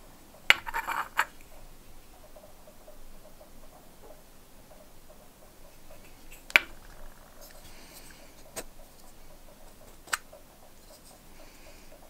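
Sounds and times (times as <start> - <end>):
fingers rustling: 0.5 - 1.6, 5.7 - 11.3.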